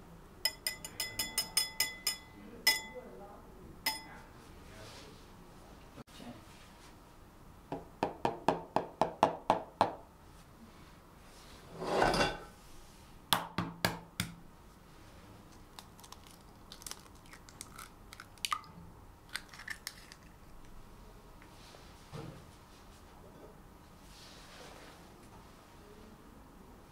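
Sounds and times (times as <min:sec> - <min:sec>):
egg cracking on glass bowl: 0:15.8 - 0:18.7, 0:19.3 - 0:20.4.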